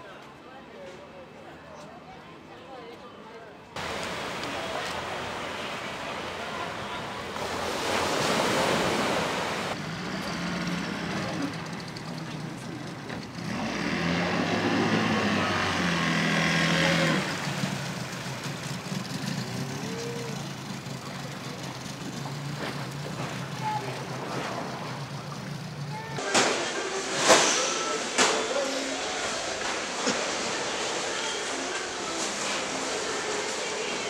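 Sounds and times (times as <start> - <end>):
outboard motor running: 5.0 - 26.2.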